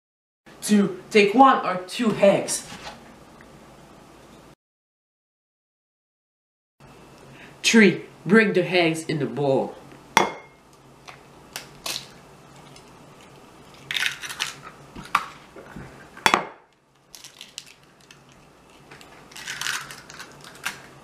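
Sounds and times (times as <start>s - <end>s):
eggshells cracking and crunching: 11.0s - 15.4s, 17.0s - 21.0s.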